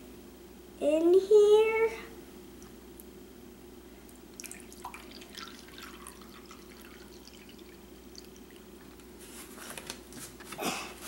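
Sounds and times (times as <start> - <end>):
liquid pouring into a cup: 4.3 - 9.0.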